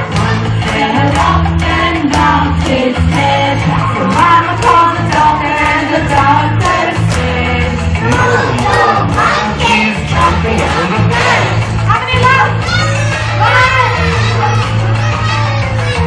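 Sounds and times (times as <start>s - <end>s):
children and adults singing: 0.0s - 11.7s
song beat with bass: 0.0s - 11.9s.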